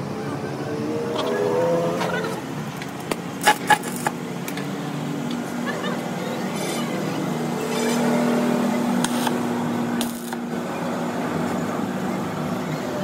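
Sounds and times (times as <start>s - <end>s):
welding arc crackling: 10.0s - 10.4s.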